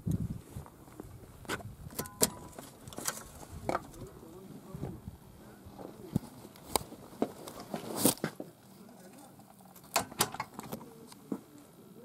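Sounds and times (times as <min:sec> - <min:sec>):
rustling: 0:05.8 - 0:11.6.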